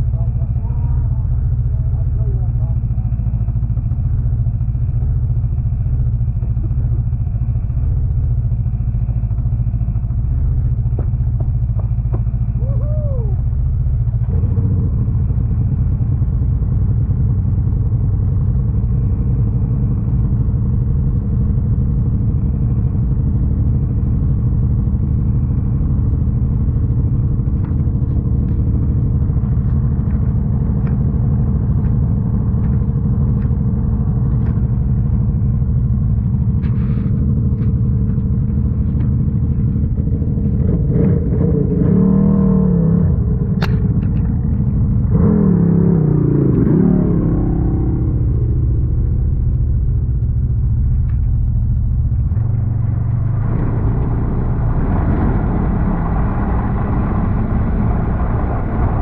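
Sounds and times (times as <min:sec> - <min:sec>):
snowmobile engine running: 0:00.0 - 0:59.0.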